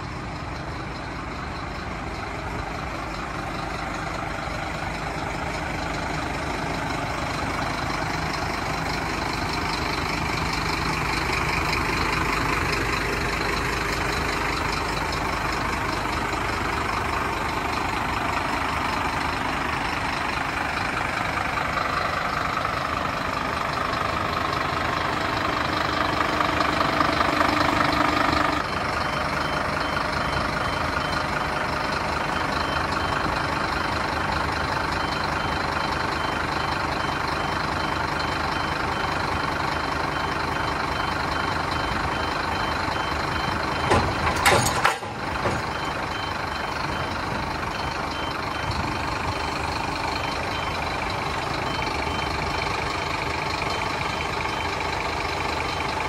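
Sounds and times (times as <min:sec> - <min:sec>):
diesel engine idling: 0:00.0 - 0:56.0.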